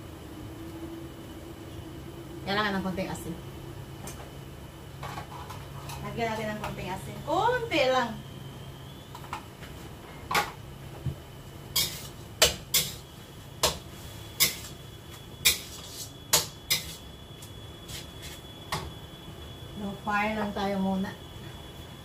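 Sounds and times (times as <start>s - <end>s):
spatula scraping a wok: 5.1s - 6.0s, 11.8s - 13.1s, 13.9s - 14.8s, 15.4s - 17.1s.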